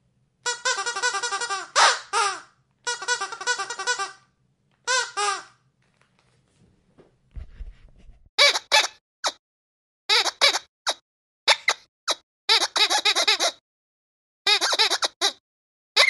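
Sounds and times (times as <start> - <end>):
squeaky dog toy squeaking: 0.4 - 4.3, 4.9 - 5.6, 8.4 - 9.4, 10.1 - 13.6, 14.5 - 15.4.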